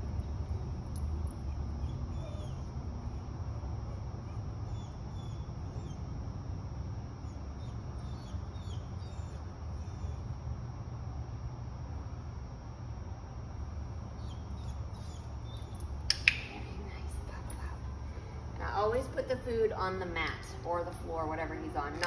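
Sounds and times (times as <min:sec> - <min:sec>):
low room hum: 0:00.0 - 0:22.0
dog whining: 0:01.3 - 0:06.3, 0:07.2 - 0:10.3, 0:14.2 - 0:15.8.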